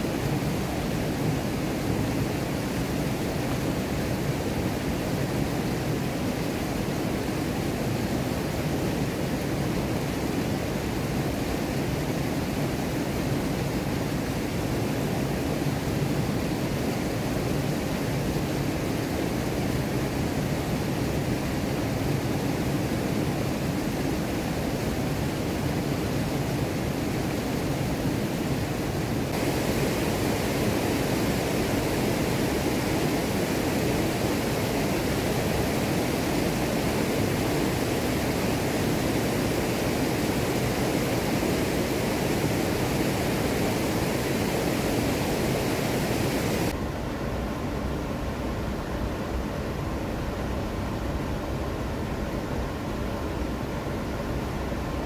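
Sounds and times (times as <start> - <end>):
waterfall rushing: 29.1 - 46.8.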